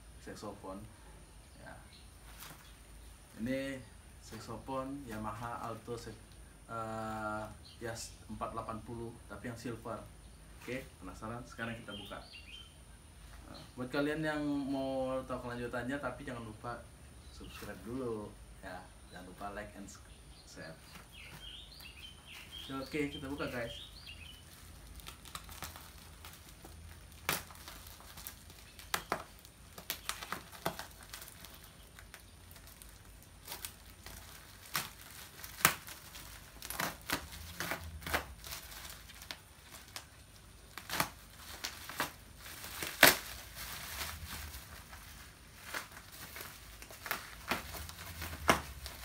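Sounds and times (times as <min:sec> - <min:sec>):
plastic wrapping tearing: 0:20.9 - 0:49.0.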